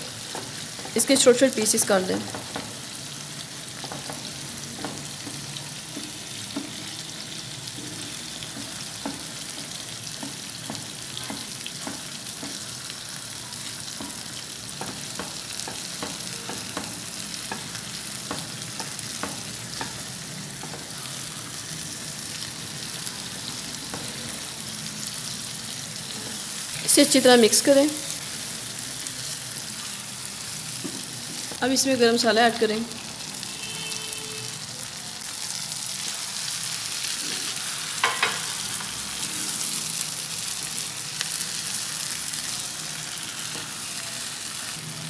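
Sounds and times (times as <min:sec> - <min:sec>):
food sizzling in a pan: 0:00.0 - 0:45.0
spatula tapping a pan: 0:02.2 - 0:02.8, 0:03.8 - 0:07.0, 0:07.7 - 0:12.9, 0:13.8 - 0:20.9, 0:38.0 - 0:38.9.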